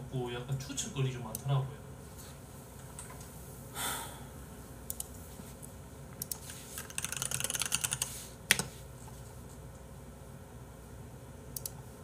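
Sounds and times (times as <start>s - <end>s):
computer keyboard typing: 6.2s - 8.7s.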